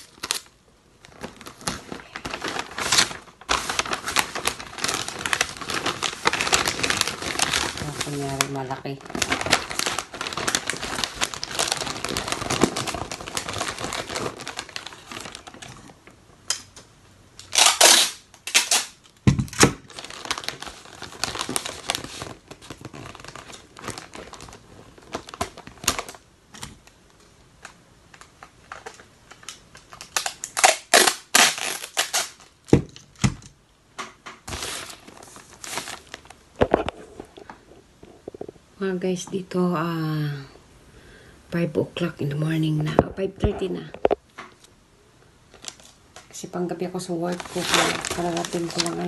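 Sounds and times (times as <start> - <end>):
wrapping paper crinkling: 0.0 - 16.2, 17.4 - 33.1, 34.4 - 38.6, 45.5 - 49.0
paper ripping: 1.1 - 15.6, 47.3 - 49.0.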